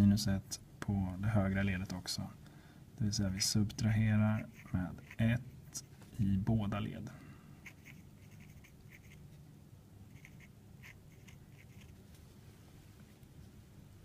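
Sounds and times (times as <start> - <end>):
marker pen scratching on paper: 4.4 - 5.3, 7.6 - 9.2, 10.1 - 12.0.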